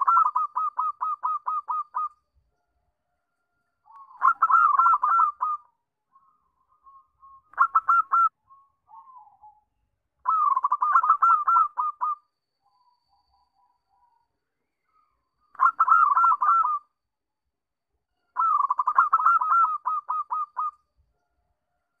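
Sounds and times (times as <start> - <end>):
dove trilling coo: 0.0 - 2.2, 3.9 - 5.7, 7.5 - 8.3, 8.9 - 9.6, 10.2 - 12.2, 15.6 - 16.9, 18.4 - 20.8.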